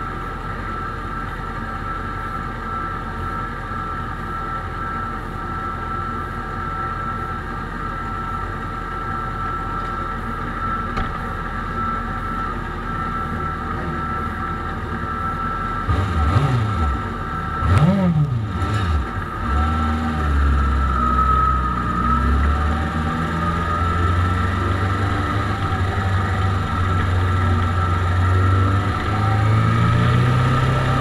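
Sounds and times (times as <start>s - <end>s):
sport bike engines revving: 15.8s - 31.0s
motorcycle engine idling: 23.6s - 29.1s.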